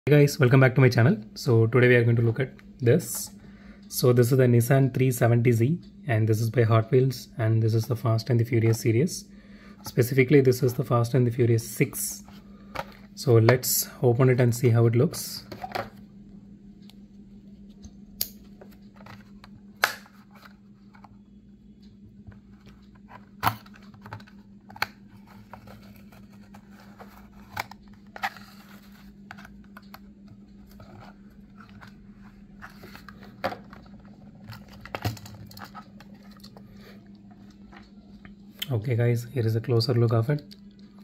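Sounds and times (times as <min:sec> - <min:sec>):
steady low hum: 0:00.1 - 0:41.0
plastic packaging clicks and crinkles: 0:32.7 - 0:36.6.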